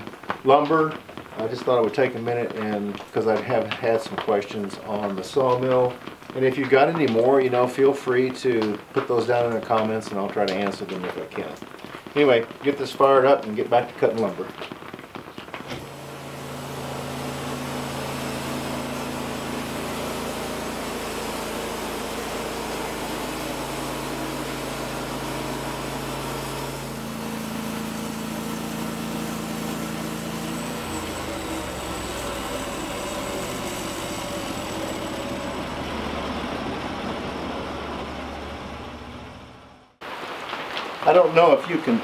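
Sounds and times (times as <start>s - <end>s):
sawmill engine running: 0.0s - 14.7s, 15.6s - 40.0s
saw cutting log: 15.7s - 39.3s.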